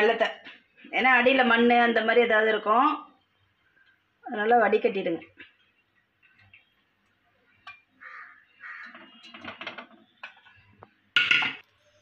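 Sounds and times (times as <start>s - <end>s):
metal pan knocking and scraping: 8.8s - 11.6s.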